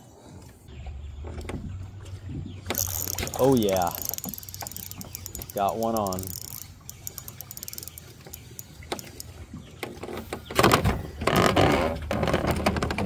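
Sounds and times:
fishing reel clicking: 0:02.7 - 0:09.3.

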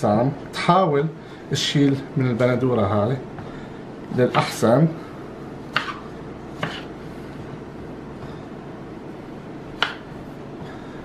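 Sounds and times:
low background noise: 0:00.0 - 0:11.0
knife cutting tomatoes on a board: 0:05.7 - 0:07.0, 0:09.8 - 0:10.1.

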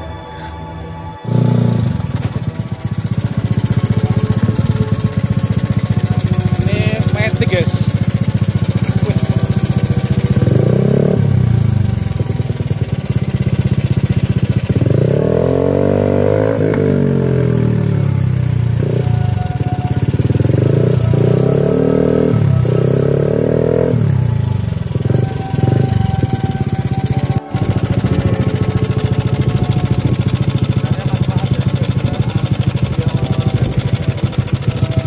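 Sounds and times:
scooter engine revving with loud exhaust: 0:01.2 - 0:35.0.

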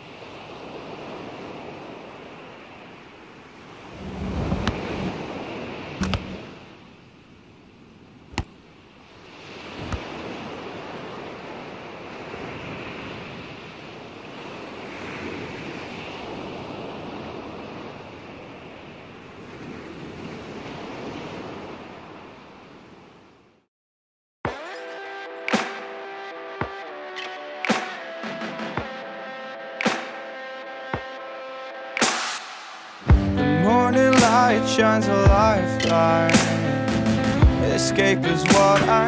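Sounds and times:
ocean waves washing: 0:00.0 - 0:23.3, 0:25.5 - 0:39.0
wind: 0:00.0 - 0:23.7, 0:24.5 - 0:39.0
sharp clicks: 0:35.8 - 0:36.6.

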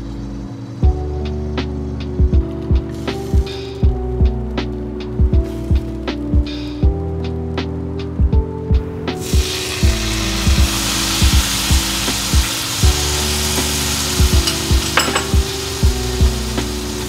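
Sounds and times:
background music with low beat: 0:00.0 - 0:17.0
water sizzling in hot pan: 0:09.2 - 0:17.0.

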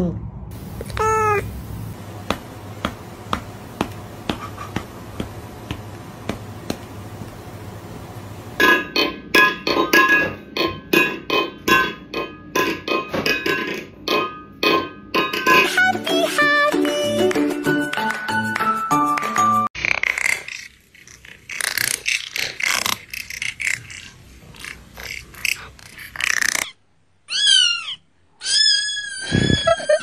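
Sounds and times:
sharp taps: 0:02.2 - 0:07.4.

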